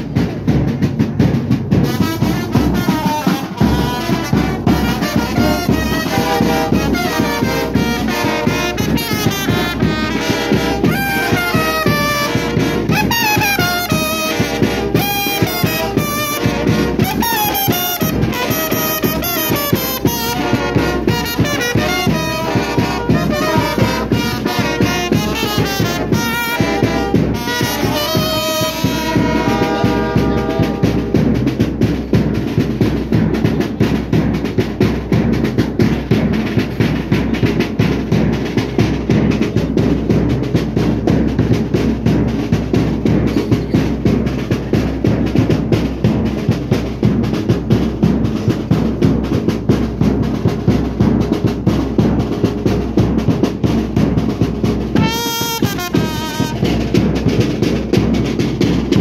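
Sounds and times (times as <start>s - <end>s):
bass drum and snare drum beat: 0.0s - 59.0s
trumpets and trombones playing: 1.7s - 31.5s, 54.8s - 59.0s.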